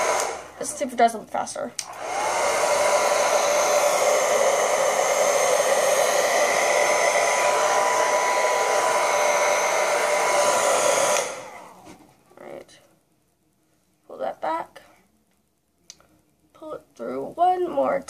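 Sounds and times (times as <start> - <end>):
hair dryer blowing: 0.0 - 1.0, 1.8 - 11.8.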